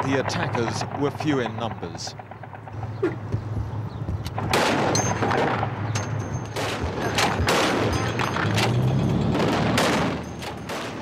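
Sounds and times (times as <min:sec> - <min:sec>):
vehicle engine hum: 0:00.0 - 0:11.0
gunshots: 0:04.3 - 0:05.9, 0:06.5 - 0:08.4, 0:09.3 - 0:11.0.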